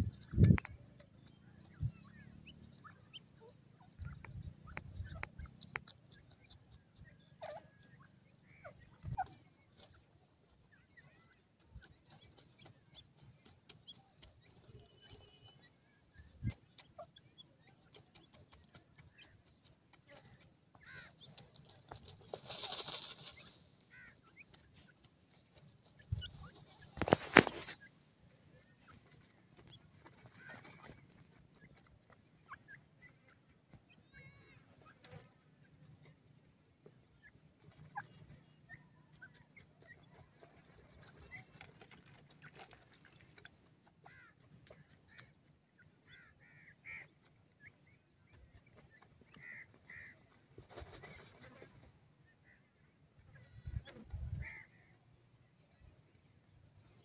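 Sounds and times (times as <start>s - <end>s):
birds peeping and chirping: 0.0s - 57.0s
rustling in dry soil: 18.9s - 33.0s, 40.0s - 44.3s, 48.1s - 52.2s.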